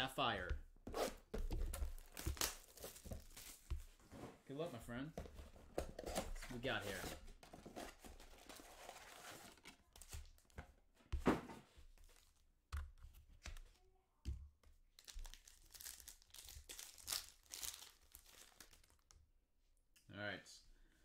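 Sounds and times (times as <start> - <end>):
foil packs crinkling: 15.0 - 19.1.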